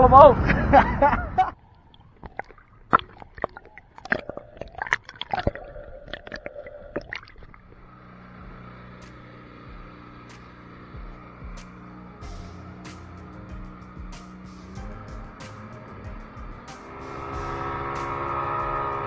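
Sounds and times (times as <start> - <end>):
steady hum: 0.5 - 15.4
watery bubbling and popping: 1.7 - 7.8.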